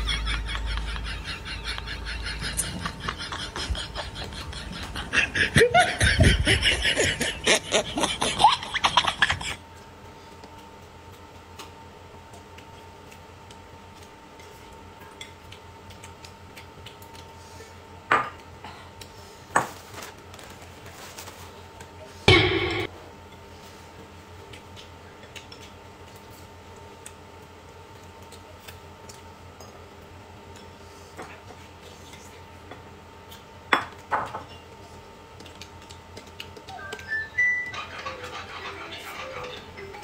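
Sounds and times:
snickering laughter: 0:00.0 - 0:09.6
dishes clinking and clattering: 0:37.4 - 0:40.0.

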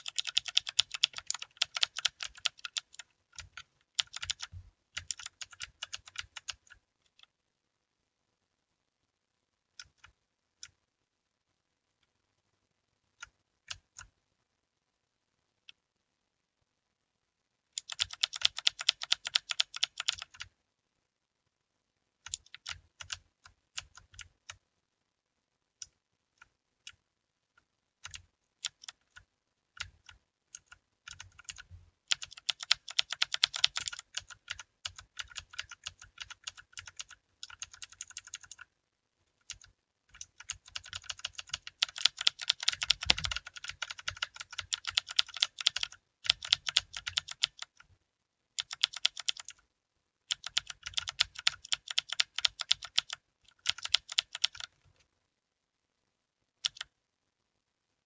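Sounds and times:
mechanical keyboard typing: 0:00.0 - 0:07.3, 0:17.8 - 0:20.5, 0:22.2 - 0:24.6, 0:28.0 - 0:38.7, 0:39.4 - 0:47.9, 0:48.6 - 0:49.6, 0:50.3 - 0:54.8, 0:56.6 - 0:56.9.

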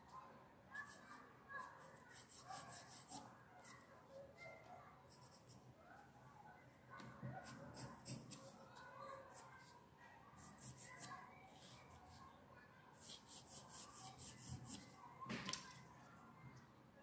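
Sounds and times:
pencil scratching on paper: 0:00.9 - 0:03.8, 0:05.1 - 0:05.6, 0:07.3 - 0:08.6, 0:10.4 - 0:12.2, 0:13.0 - 0:15.0.

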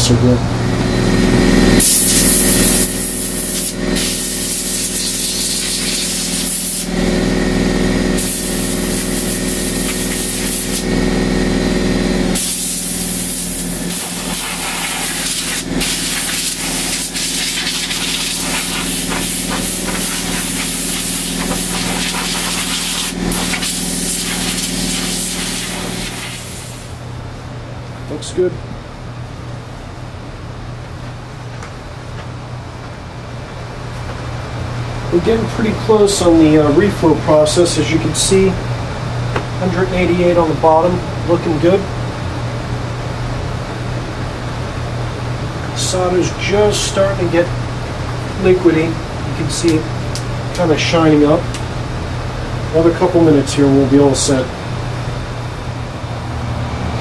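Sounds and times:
steady hum: 0:00.0 - 0:57.0
compressed air hissing: 0:01.8 - 0:07.0, 0:08.0 - 0:11.0, 0:12.3 - 0:27.0.

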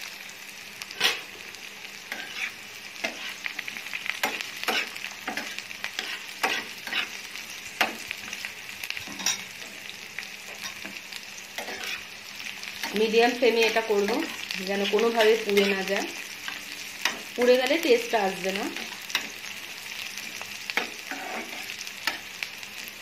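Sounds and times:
onion sizzling in hot oil: 0:00.0 - 0:23.0
metal spatula scraping a pan: 0:00.9 - 0:01.4, 0:02.1 - 0:07.2, 0:09.0 - 0:09.8, 0:10.5 - 0:12.2, 0:20.7 - 0:22.3.

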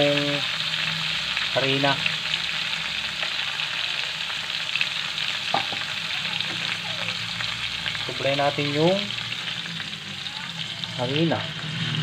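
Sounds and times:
sizzling and bubbling in a wok: 0:00.0 - 0:12.0.

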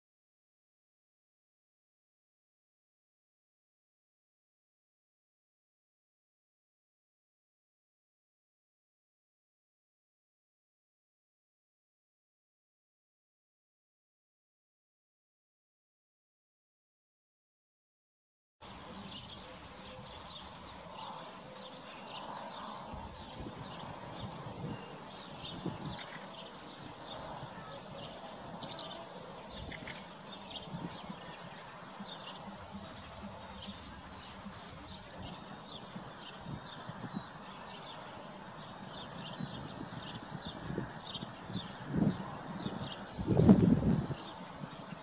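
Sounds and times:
horses cropping and chewing grass: 0:18.8 - 0:43.1.

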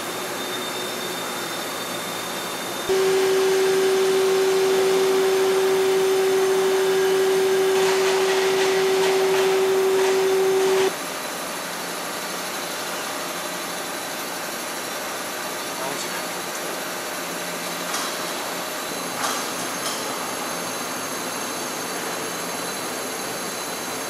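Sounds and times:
lathe cutting whine: 0:00.0 - 0:11.0
machine running noise: 0:00.0 - 0:11.0.

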